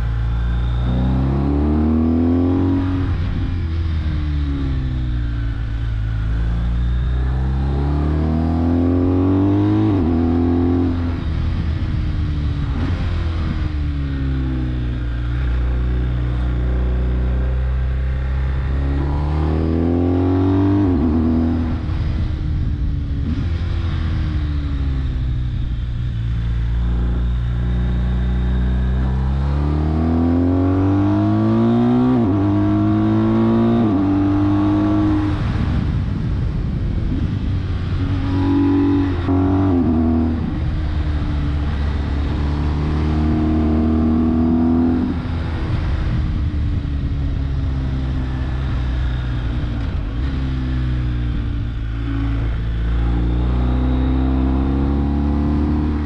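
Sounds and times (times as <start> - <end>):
motorcycle engine accelerating: 0.0 - 56.0
wind rush: 8.6 - 27.5, 30.7 - 55.1.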